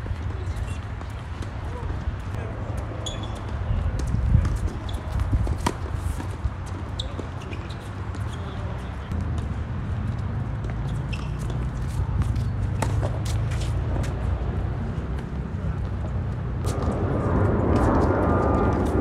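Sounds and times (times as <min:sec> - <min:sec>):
tennis ball bouncing: 0:11.1 - 0:13.7
steady low rumble: 0:16.6 - 0:19.0.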